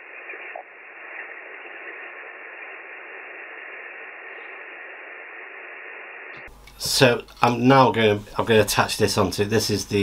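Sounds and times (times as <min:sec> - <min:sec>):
radio receiver hiss: 0:00.0 - 0:10.0.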